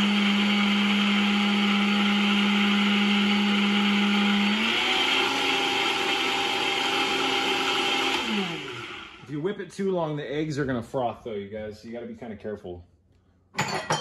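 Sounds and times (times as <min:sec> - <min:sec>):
blender motor running: 0:00.0 - 0:09.3.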